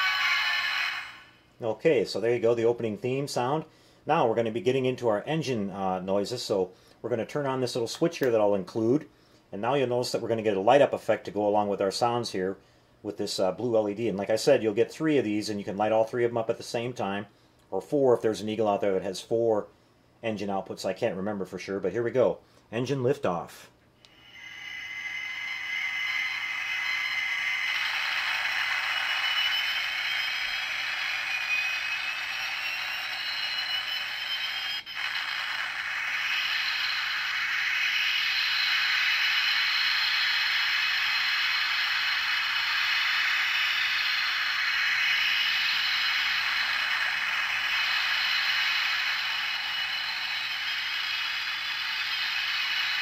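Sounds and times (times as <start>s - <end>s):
hissing engine rush sound effect: 0.0s - 1.4s, 24.1s - 53.0s.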